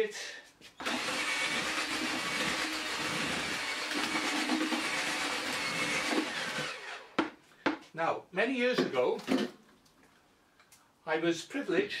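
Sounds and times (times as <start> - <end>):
mixer churning damp bait in bucket: 0.8 - 6.8
drill with paddle mixer running: 0.8 - 7.3.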